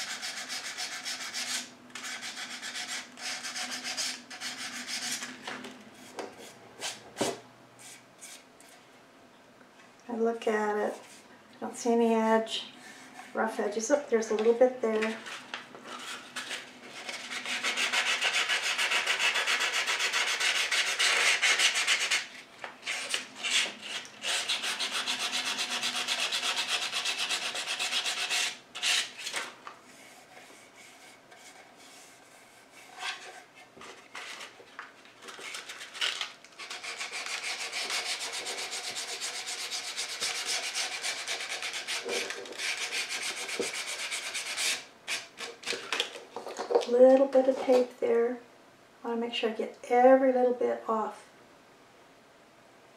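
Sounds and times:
sandpaper rubbing wood: 0:00.0 - 0:05.3, 0:15.2 - 0:29.4, 0:36.6 - 0:45.4.

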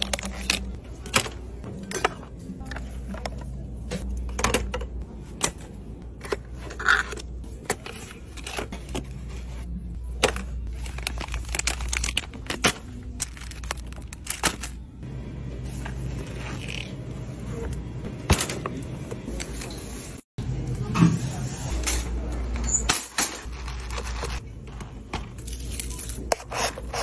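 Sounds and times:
products clicking on shelves: 0:00.0 - 0:09.2, 0:10.1 - 0:14.8.

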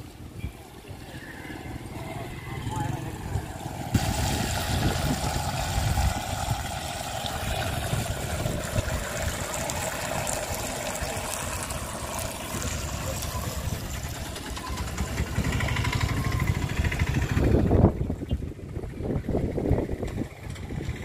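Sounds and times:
fuel pouring into funnel: 0:03.5 - 0:18.0.

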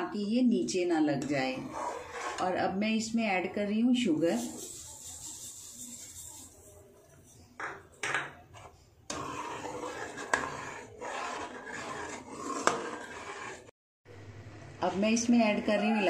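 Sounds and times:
spoon scraping metal pan: 0:01.1 - 0:02.6, 0:04.1 - 0:07.5, 0:08.5 - 0:13.7.

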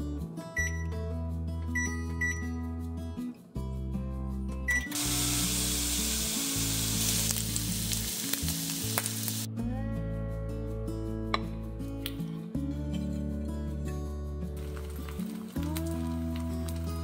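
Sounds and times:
background music: 0:00.0 - 0:17.0
bacon sizzling in a pan: 0:05.0 - 0:09.5.

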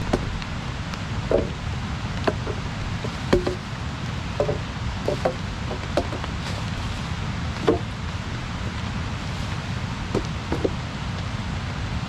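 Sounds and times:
knocking on wood: 0:01.3 - 0:01.6, 0:02.2 - 0:03.6, 0:04.4 - 0:06.3, 0:07.6 - 0:07.9, 0:10.1 - 0:10.8.

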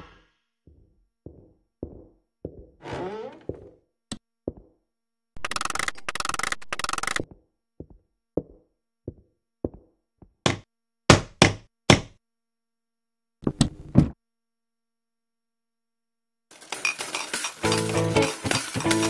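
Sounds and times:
hammer striking nail: 0:10.5 - 0:12.2.

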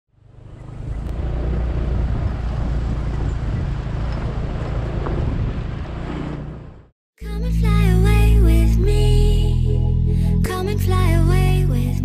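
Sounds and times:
vehicle engine running: 0:00.1 - 0:06.9
wind noise on microphone: 0:01.2 - 0:06.7.

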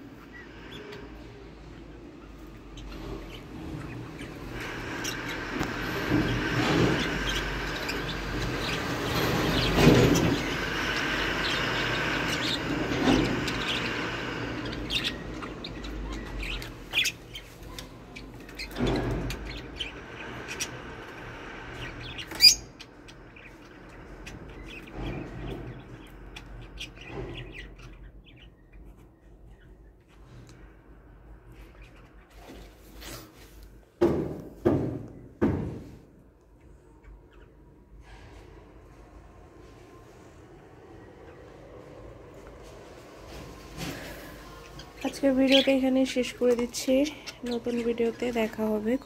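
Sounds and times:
rushing background noise: 0:00.0 - 0:27.8
small birds chirping: 0:00.0 - 0:33.5, 0:43.3 - 0:49.0.

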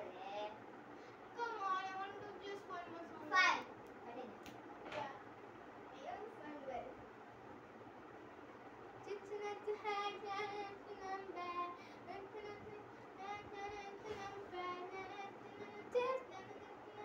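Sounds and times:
girl singing: 0:09.0 - 0:17.0.

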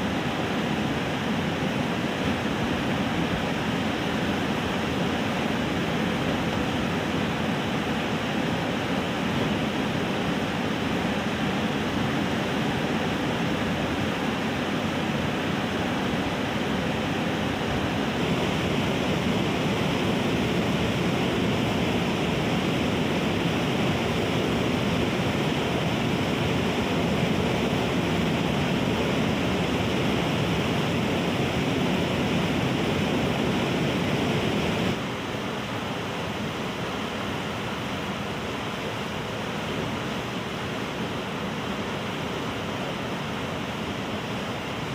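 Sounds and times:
river rushing over rapids: 0:00.0 - 0:44.9.

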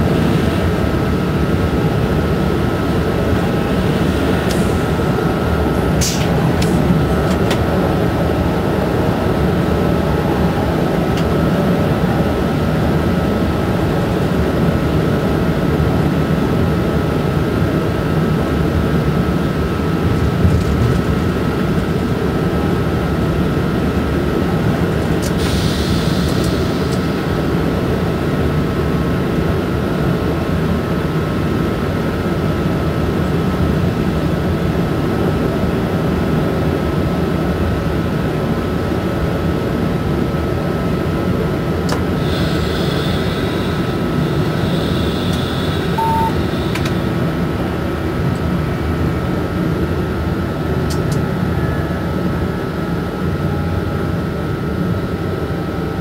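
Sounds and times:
constant thin whine: 0:00.0 - 0:29.6, 0:40.9 - 0:56.0
passing train rush: 0:00.0 - 0:56.0
wheels rumbling on rail: 0:00.0 - 0:56.0.

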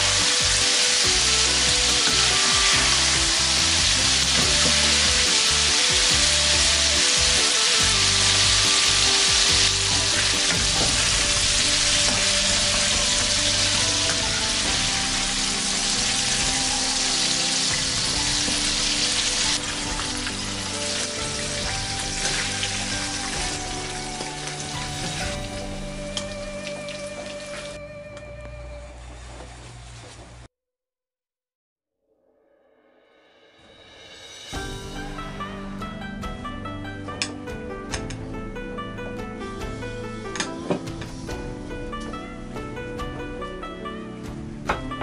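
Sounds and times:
wings sizzling in hot oil: 0:00.0 - 0:27.8.

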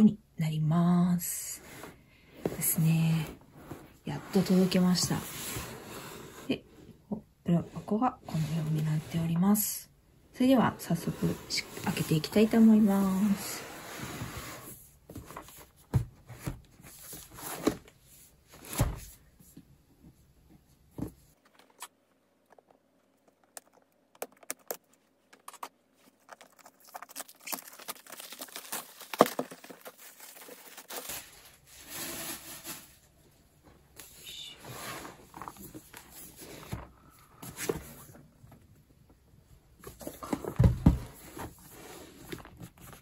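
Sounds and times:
plastic shrink wrap tearing: 0:25.4 - 0:31.6.

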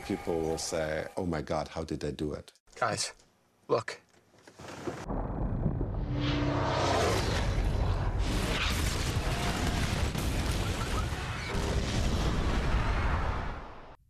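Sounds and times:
crashing booms and explosions: 0:05.1 - 0:14.0.

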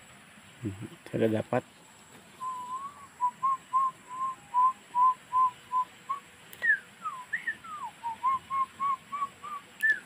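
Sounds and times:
short whistled notes: 0:02.4 - 0:10.0.

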